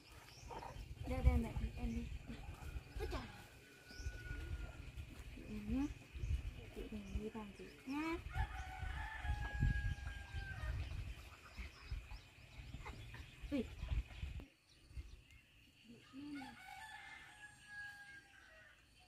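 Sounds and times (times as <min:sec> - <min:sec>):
rooster crowing: 0:16.4 - 0:18.8.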